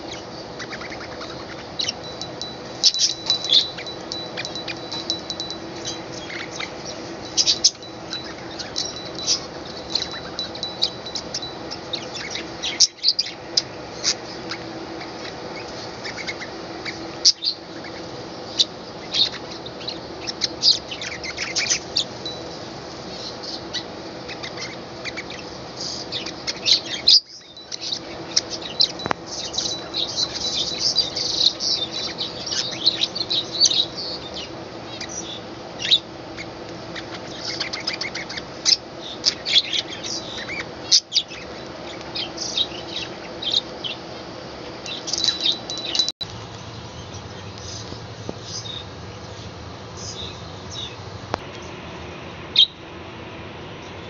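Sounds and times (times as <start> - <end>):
budgerigars chattering: 0.1 - 22.2, 23.5 - 34.4.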